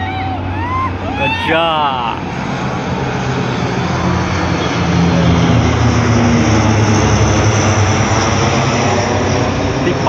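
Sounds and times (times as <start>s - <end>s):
fighter jets flying overhead: 0.0s - 10.0s.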